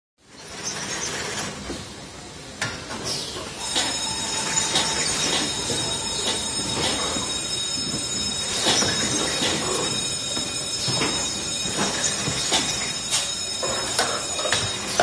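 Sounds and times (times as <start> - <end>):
conveyor and machine noise: 0.2 - 15.0
machine clacks: 3.6 - 15.0.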